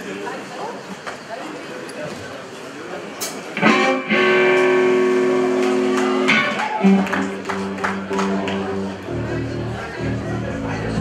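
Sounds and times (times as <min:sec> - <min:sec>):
electric guitar playing blues: 0:03.6 - 0:11.0.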